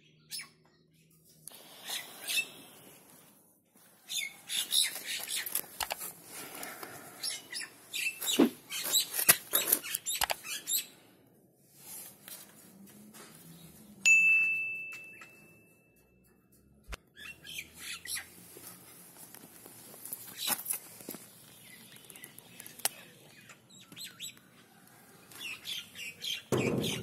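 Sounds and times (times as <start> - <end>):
small birds chirping: 0.0 - 11.2, 16.9 - 27.0.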